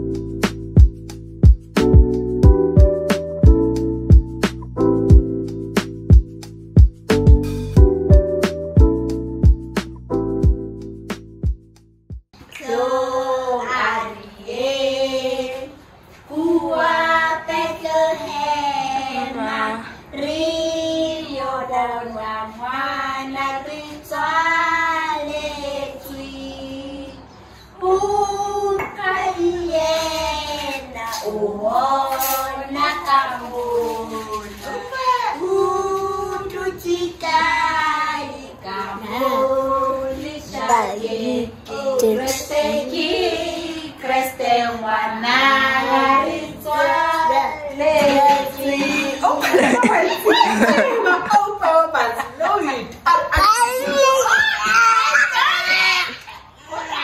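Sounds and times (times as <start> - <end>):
girls and woman singing: 12.4 - 51.6
person singing: 41.7 - 43.4.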